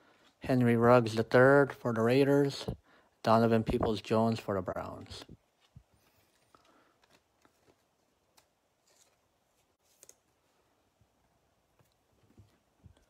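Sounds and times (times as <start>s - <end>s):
trading cards rustling: 3.6s - 10.8s.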